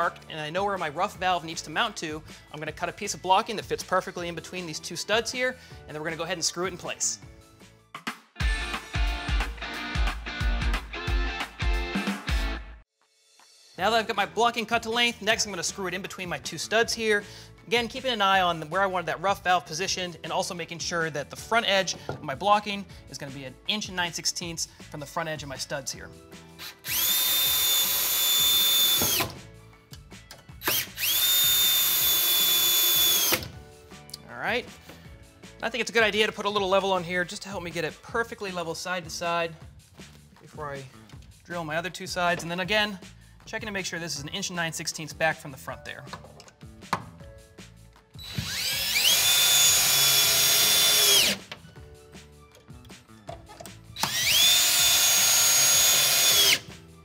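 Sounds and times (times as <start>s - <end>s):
cordless drill driving screws: 26.6s - 29.4s, 30.6s - 33.5s, 48.2s - 51.5s, 54.0s - 56.7s.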